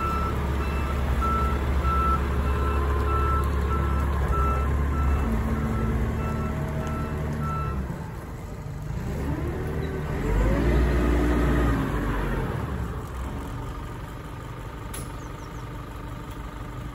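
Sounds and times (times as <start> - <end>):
reversing alarm beeping: 0.0 - 7.8
diesel engine running and revving: 0.0 - 16.9.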